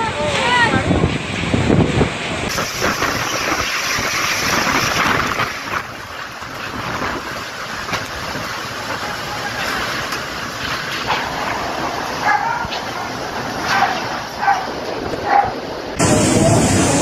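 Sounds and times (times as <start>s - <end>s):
storm wind and rain: 0.0s - 17.0s
dog barking: 12.2s - 12.8s, 13.7s - 15.6s.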